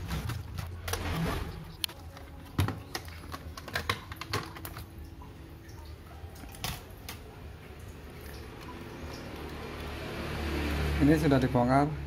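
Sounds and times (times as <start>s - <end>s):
plastic clicks: 0.1s - 4.9s.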